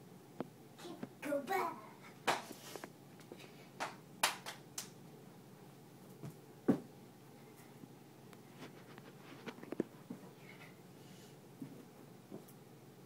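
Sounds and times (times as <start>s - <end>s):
hands and feet landing on carpet: 6.2s - 6.9s.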